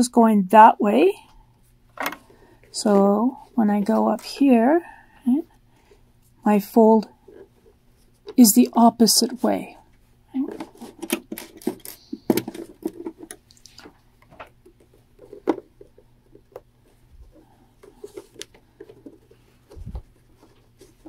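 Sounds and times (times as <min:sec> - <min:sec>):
fabric rustling: 0:16.9 - 0:21.0.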